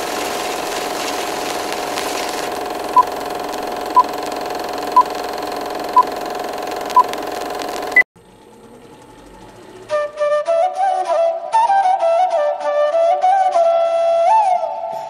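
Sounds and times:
film projector whirr: 0.0 - 10.1
short beeps: 6.9 - 8.0.

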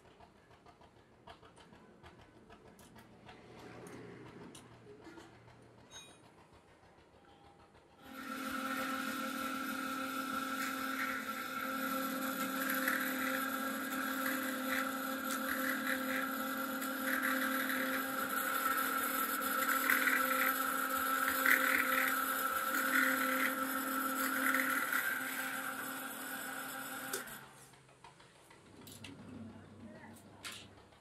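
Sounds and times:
drill press motor running: 0.0 - 31.0
drill bit cutting steel: 8.0 - 27.6.

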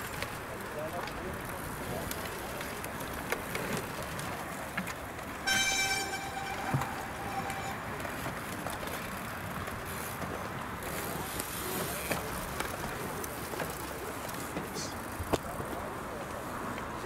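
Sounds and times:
outdoor background noise: 0.0 - 17.0
horn steady note: 5.4 - 8.2.

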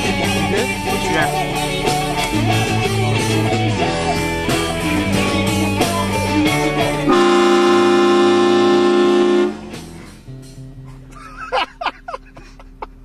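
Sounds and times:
live rock band playing: 0.0 - 10.6
train horn blast: 7.1 - 9.9.

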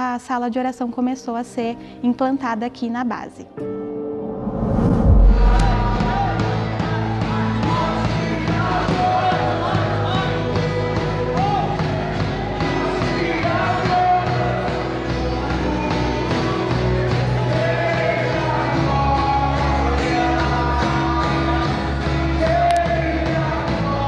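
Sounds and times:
steady bass line: 4.6 - 24.0
person singing: 5.1 - 24.0.

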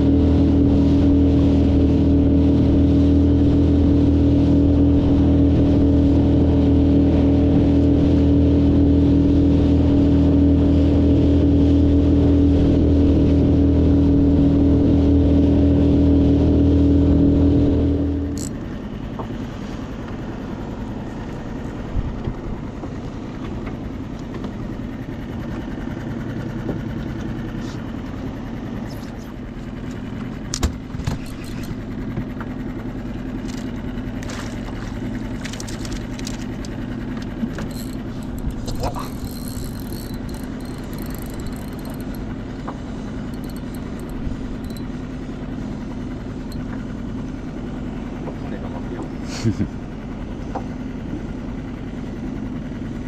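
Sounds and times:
boat outboard motor running: 0.0 - 53.0
faint clicks: 35.4 - 42.2.

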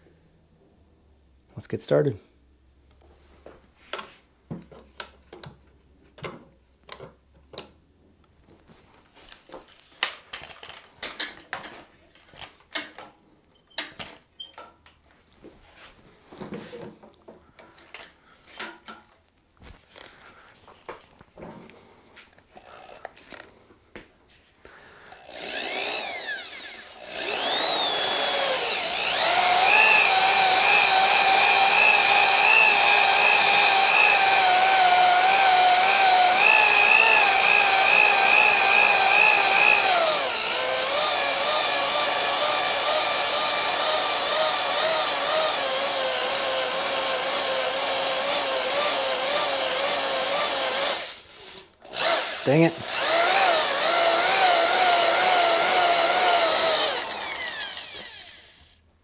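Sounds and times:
power drill whining: 22.4 - 23.6, 24.9 - 58.8.

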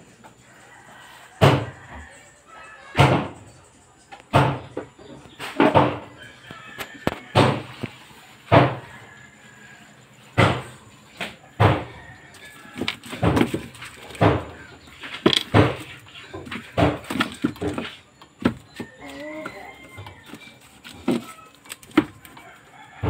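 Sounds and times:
short knocks and thumps: 4.3 - 6.1, 7.1 - 7.9, 8.5 - 8.9, 10.4 - 12.0, 12.8 - 21.3.

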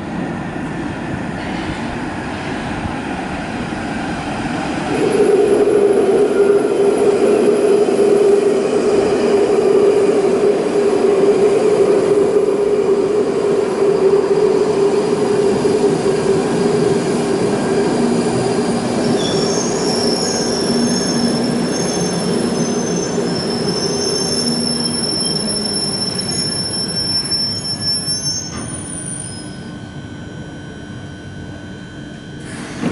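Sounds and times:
low drone of train: 0.0 - 32.9
train braking to a stop: 4.4 - 32.9
high thin brake squeal: 19.1 - 29.8.

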